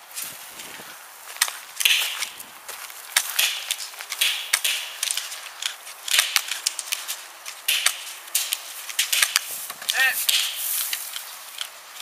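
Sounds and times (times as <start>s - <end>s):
airsoft gunfire pops: 1.4s - 2.4s, 3.2s - 5.3s, 6.1s - 6.7s, 7.7s - 9.5s, 10.2s - 10.6s.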